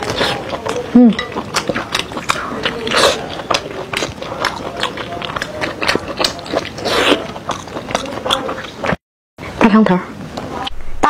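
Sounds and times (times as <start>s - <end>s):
person chewing with wet smacking: 0.0s - 9.0s.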